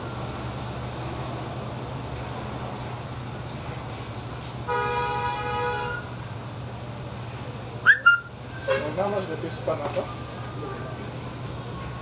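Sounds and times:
vehicle horn honk: 4.7 - 6.1, 8.2 - 9.0.

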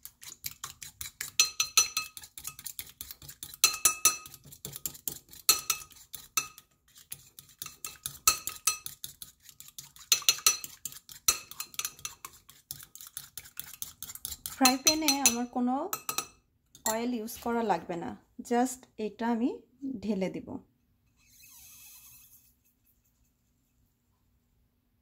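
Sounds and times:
fork clicking against glass bowl: 0.2 - 6.6, 7.5 - 15.4.

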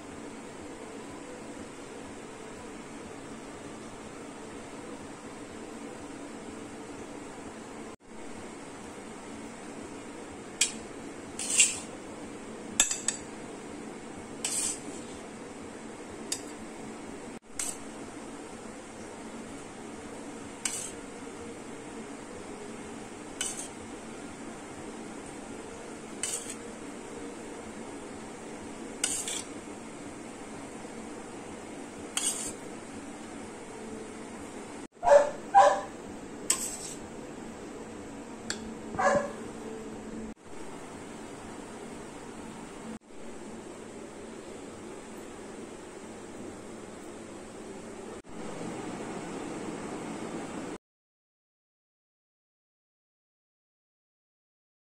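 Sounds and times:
metal spoon clinking on plate and glass: 12.8 - 13.3
dog barking: 35.0 - 36.0, 39.0 - 39.5.

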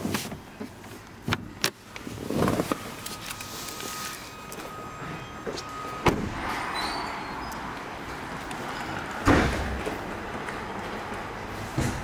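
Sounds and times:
car door slam: 6.0 - 6.4, 9.2 - 9.8.

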